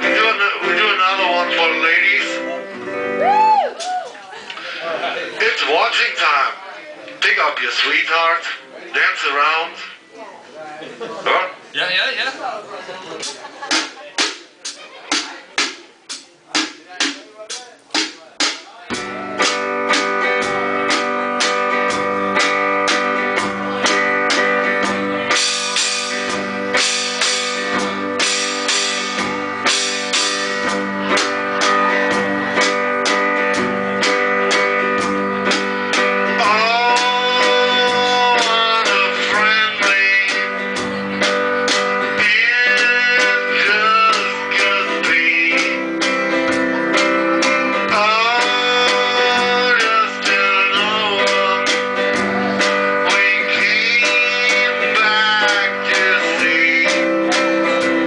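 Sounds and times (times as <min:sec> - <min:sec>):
man singing: 0:00.0 - 0:02.6, 0:36.2 - 0:58.0
acoustic guitar strummed: 0:18.9 - 0:58.0.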